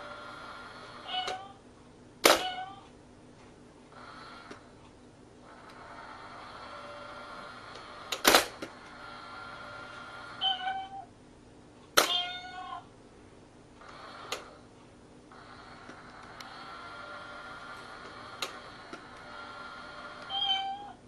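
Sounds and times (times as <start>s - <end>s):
cat meowing: 10.4s - 11.1s, 12.0s - 12.8s, 20.3s - 21.0s.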